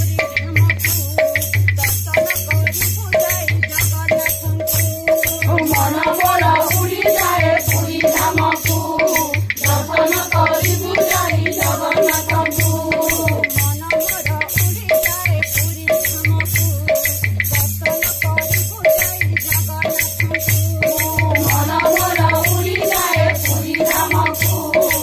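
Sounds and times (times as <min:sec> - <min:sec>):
fast drum beat: 0:00.0 - 0:25.0
jingling percussion: 0:00.0 - 0:25.0
women singing: 0:05.3 - 0:14.4, 0:20.6 - 0:25.0.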